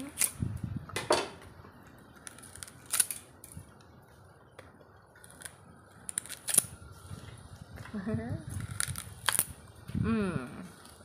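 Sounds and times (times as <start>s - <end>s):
sugarcane cracking between teeth: 2.2s - 3.6s, 5.2s - 6.7s, 8.5s - 9.6s.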